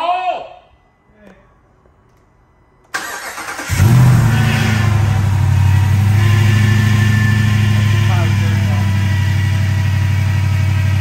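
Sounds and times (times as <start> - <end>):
car engine starting and idling: 2.8 - 11.0
starter motor cranking: 2.9 - 4.0.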